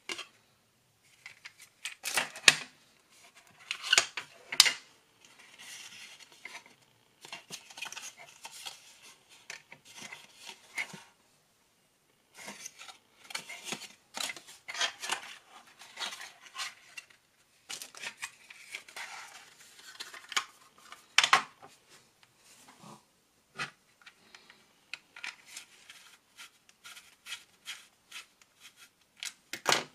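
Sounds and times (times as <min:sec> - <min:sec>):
paper card rustling and scraping: 0:03.1 - 0:11.2, 0:12.3 - 0:21.9, 0:25.2 - 0:29.0.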